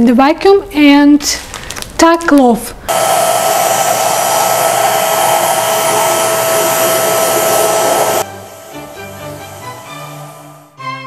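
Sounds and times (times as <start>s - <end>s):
vacuum cleaner whining: 2.9s - 10.9s.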